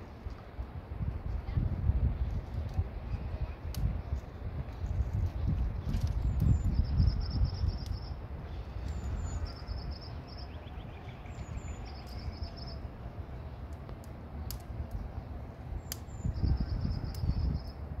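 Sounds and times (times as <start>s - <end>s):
bird chirps: 8.8s - 12.8s.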